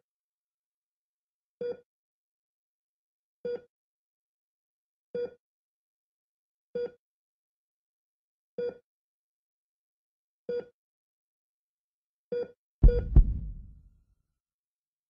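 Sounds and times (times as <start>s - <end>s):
heart monitor beeping: 12.8s - 13.7s.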